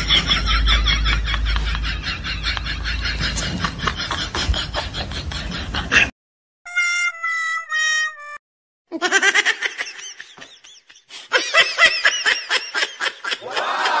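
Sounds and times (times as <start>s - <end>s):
high-pitched laughter: 8.9s - 14.0s.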